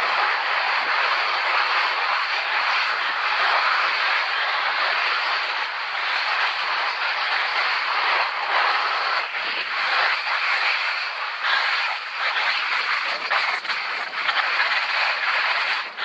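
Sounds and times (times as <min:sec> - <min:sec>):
skis sliding over snow: 0:00.0 - 0:16.0.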